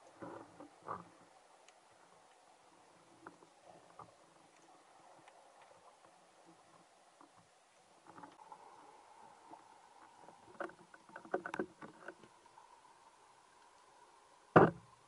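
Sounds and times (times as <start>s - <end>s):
faint underwater hum: 0.0s - 15.0s
small clicks and knocks: 10.0s - 12.4s.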